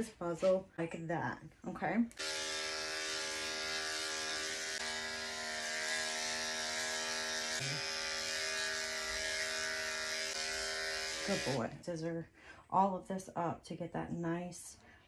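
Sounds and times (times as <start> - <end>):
electric clippers humming: 2.1 - 11.7.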